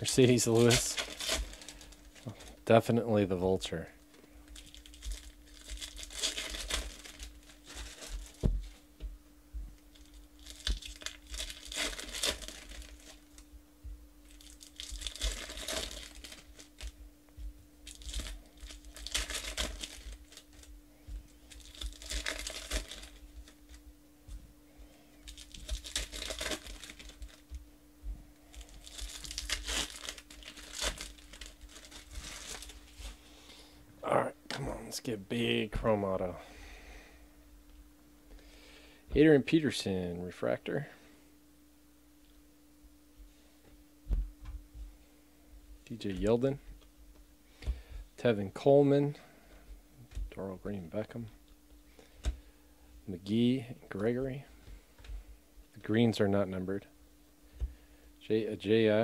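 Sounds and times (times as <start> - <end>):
foil wrappers tearing and crinkling: 0.0 - 2.6, 4.1 - 8.8, 9.9 - 13.4, 14.2 - 17.0, 17.8 - 20.7, 21.3 - 23.8, 25.2 - 27.6, 28.5 - 33.2
faint steady hum: 0.0 - 59.0.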